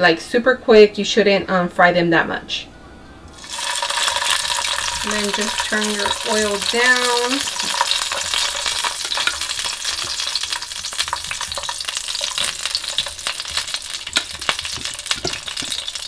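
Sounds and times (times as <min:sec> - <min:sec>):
tomatoes sizzling in oil: 0:03.3 - 0:16.0.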